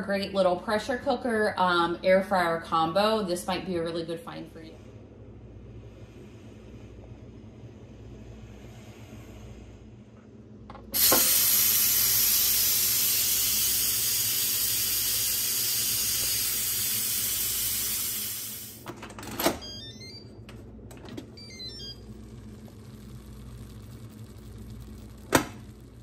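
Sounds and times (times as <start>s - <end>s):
steam hissing from valve: 11.0s - 18.8s.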